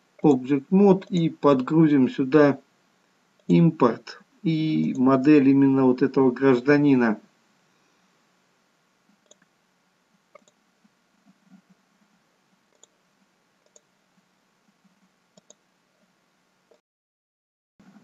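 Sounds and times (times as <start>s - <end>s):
computer mouse clicks: 1.0s - 1.3s, 9.1s - 9.5s, 10.3s - 10.6s, 12.7s - 13.0s, 13.6s - 13.9s, 14.8s - 15.6s.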